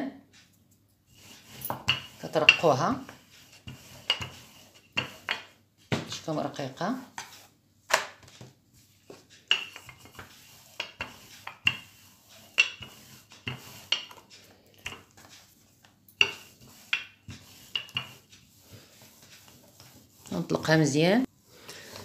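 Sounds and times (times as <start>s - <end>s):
rolling pin on wooden board: 0.3s - 21.3s
rolling pin clacks: 7.1s - 20.8s.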